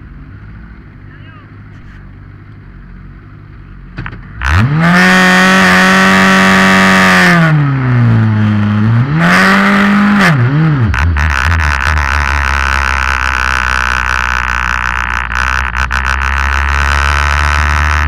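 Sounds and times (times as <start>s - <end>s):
race car engine revving: 4.0s - 18.0s.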